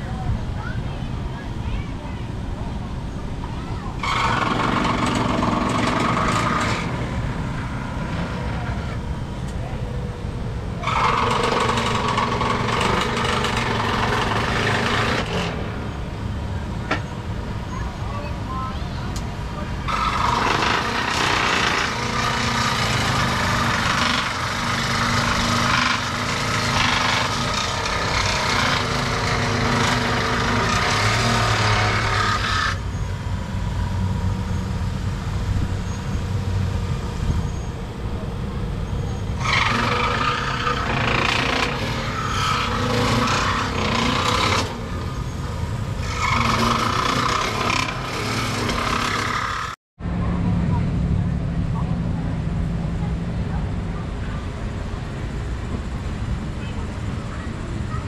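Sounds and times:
power tool running under load: 4.0 - 9.6, 10.8 - 16.0, 19.8 - 32.9, 38.9 - 49.8.

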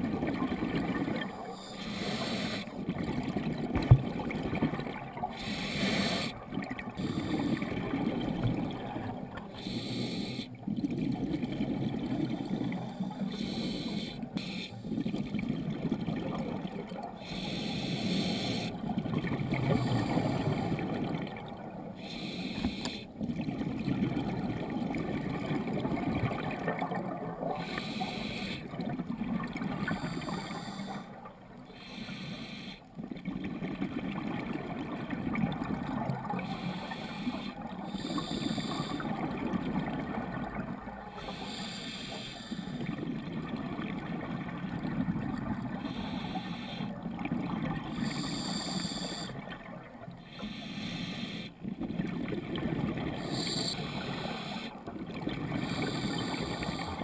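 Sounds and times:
bubbling exhale: 4.2 - 28.9, 35.5 - 43.6, 44.5 - 57.0.

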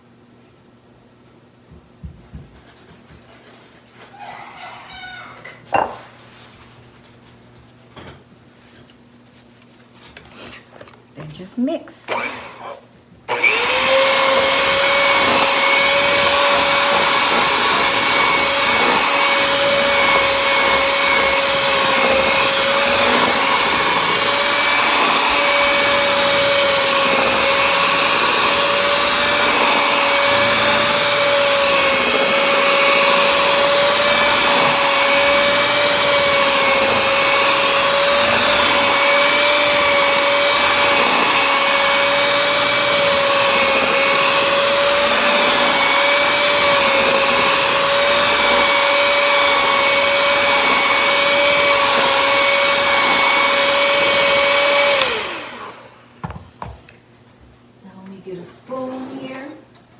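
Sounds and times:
electric hand mixer whirring: 12.0 - 56.8.

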